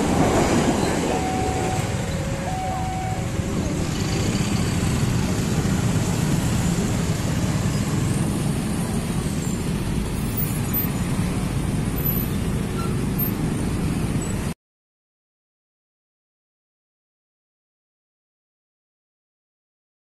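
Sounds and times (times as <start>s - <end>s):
scooters and motorcycles pulling away: 0.0s - 14.5s.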